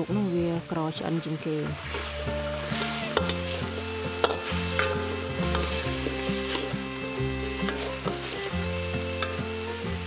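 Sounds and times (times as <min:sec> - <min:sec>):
stir-fry sizzling in a wok: 0:00.0 - 0:10.0
metal spatula scraping a pan: 0:01.6 - 0:10.0.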